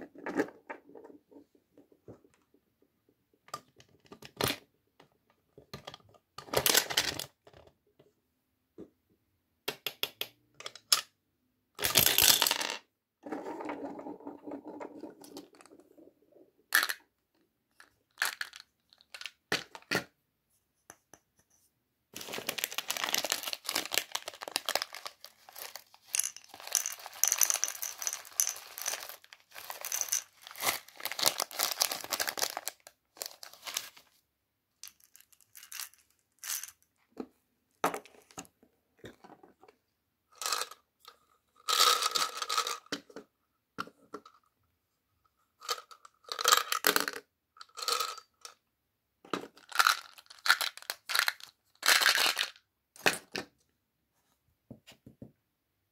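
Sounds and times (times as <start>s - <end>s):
plastic wrapper crinkling: 22.2s - 34.0s.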